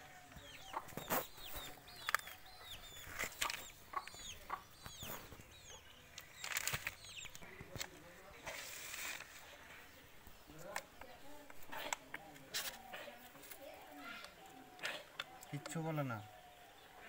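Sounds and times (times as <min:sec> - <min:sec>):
chickens clucking: 0:00.0 - 0:06.2.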